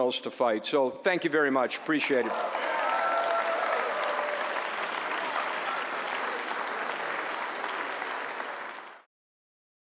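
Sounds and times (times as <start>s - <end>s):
audience applauding: 2.2s - 9.1s.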